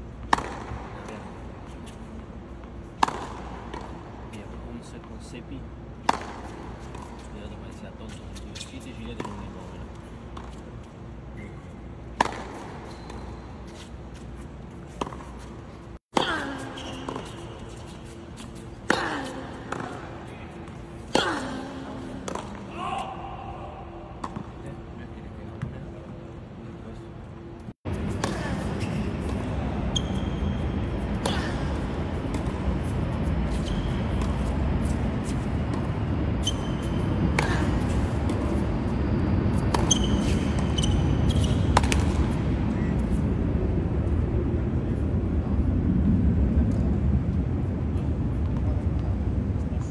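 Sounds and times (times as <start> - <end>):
tennis ball hit by racket: 0.3 - 1.3, 3.0 - 4.0, 6.0 - 7.3, 12.1 - 13.3, 18.8 - 20.0, 21.1 - 22.6, 41.7 - 42.3
tennis shoes squeaking: 0.3 - 22.7, 28.1 - 31.6, 32.4 - 35.6, 36.2 - 42.9.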